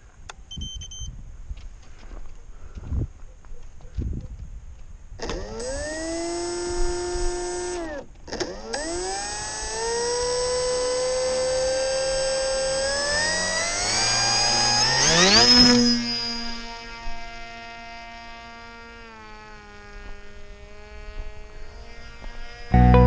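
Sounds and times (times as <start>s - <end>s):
electric propeller motor whining: 5.2s - 23.0s.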